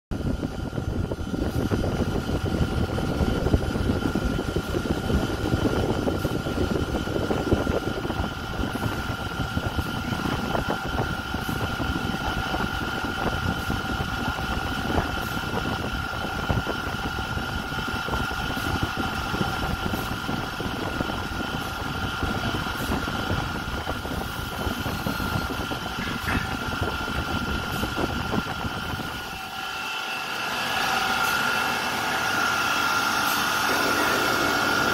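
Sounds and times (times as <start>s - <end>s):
electric fan air rumble: 0.1s - 34.9s
thin fan whine: 0.1s - 34.9s.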